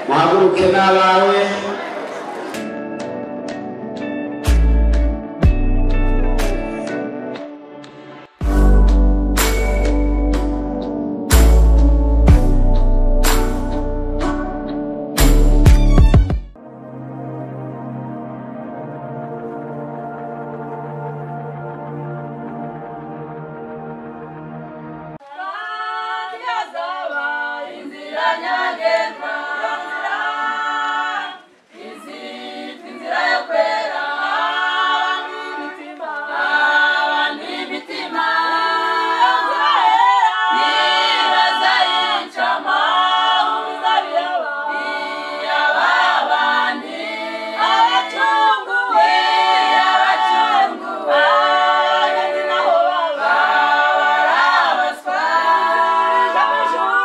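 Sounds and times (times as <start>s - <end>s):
unaccompanied choir singing: 17.9s - 57.0s.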